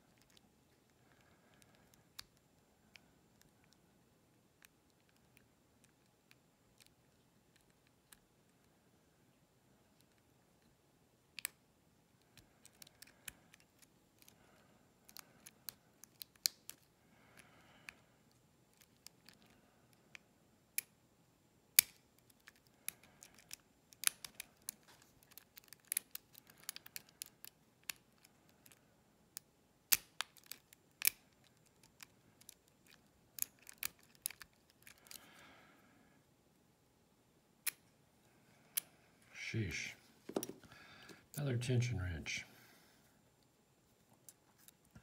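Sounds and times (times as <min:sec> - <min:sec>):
lock pick clicking and scraping: 0:21.8 - 0:28.8, 0:29.4 - 0:35.2.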